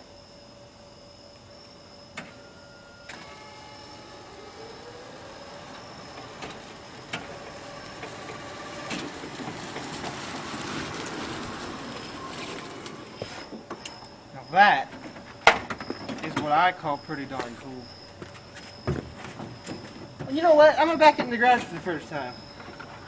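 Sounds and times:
electric motor whining: 1.3s - 14.5s
rushing drive noise: 3.1s - 13.8s.

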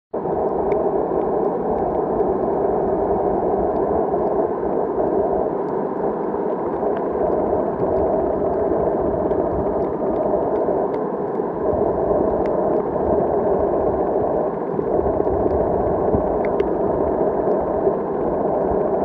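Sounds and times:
muffled underwater rush: 0.2s - 19.0s
faint clicks: 0.4s - 2.5s, 5.4s - 5.8s, 7.8s - 11.5s, 14.7s - 16.8s.

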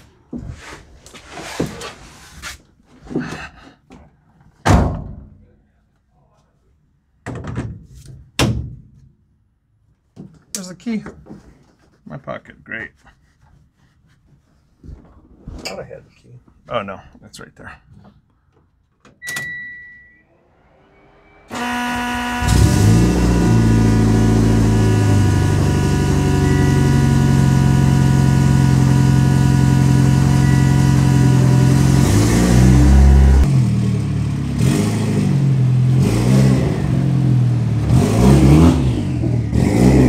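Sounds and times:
short beep: 19.2s - 21.6s, 26.2s - 27.8s, 30.2s - 31.6s
car engine idling and revving: 20.6s - 40.0s.

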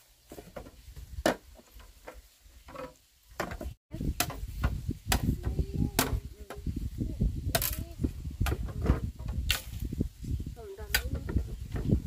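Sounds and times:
low thuds and knocks: 7.5s - 9.9s.

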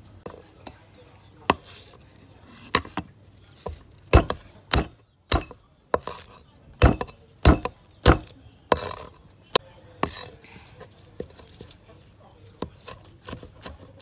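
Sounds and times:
cleaver chopping on wooden board: 1.5s - 1.8s, 2.6s - 10.3s, 12.6s - 14.0s.

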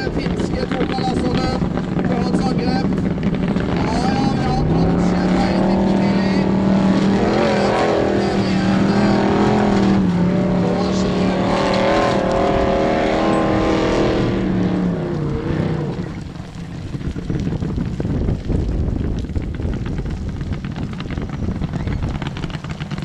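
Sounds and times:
race car engine at high revs: 0.0s - 17.9s.

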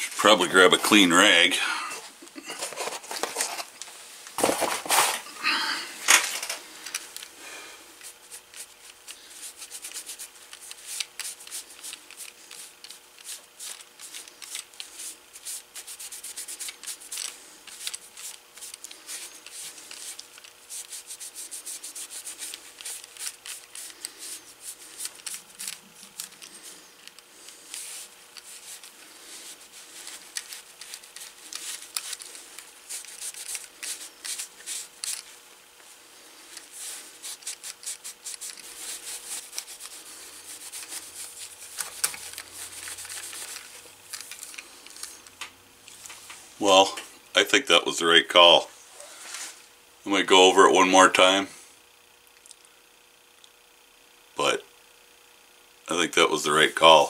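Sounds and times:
cloth rag rubbing leather: 8.0s - 35.3s, 36.0s - 43.8s.

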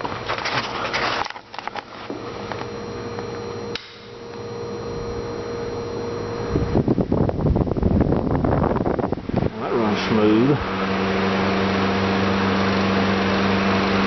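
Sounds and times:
fan motor and blades whirring: 0.0s - 14.0s
fan switch click: 2.5s - 4.4s
wind buffeting microphone: 6.4s - 9.8s.

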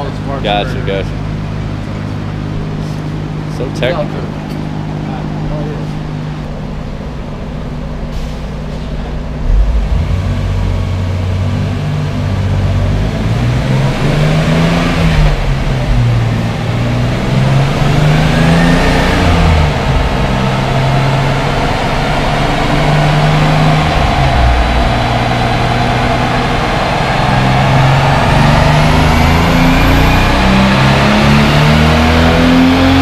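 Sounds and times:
car engine revving on dyno: 9.1s - 33.0s.

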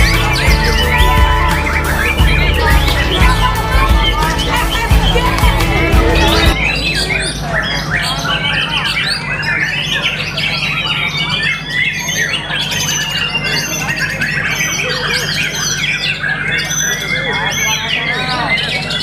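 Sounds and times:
bird singing whistles and trills: 6.2s - 19.0s.

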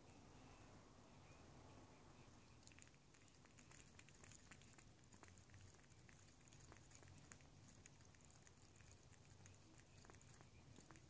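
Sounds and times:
cat lapping liquid: 2.4s - 11.0s.

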